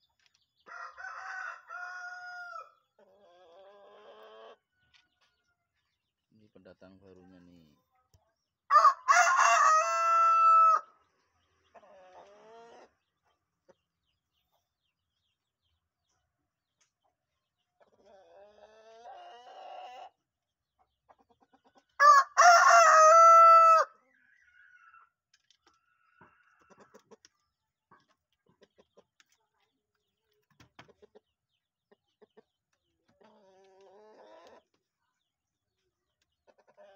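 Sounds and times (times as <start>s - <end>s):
distant rooster crowing: 0.7s - 2.7s, 8.7s - 10.9s, 22.0s - 23.9s
rooster crowing: 0.7s - 2.7s, 8.7s - 10.9s, 22.0s - 23.9s.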